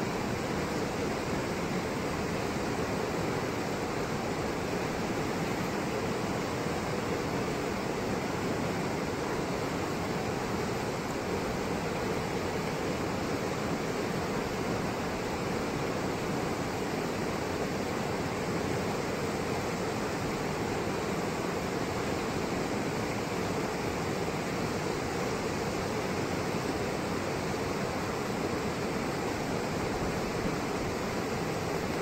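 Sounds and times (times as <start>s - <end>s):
river rapids rushing: 0.0s - 32.0s.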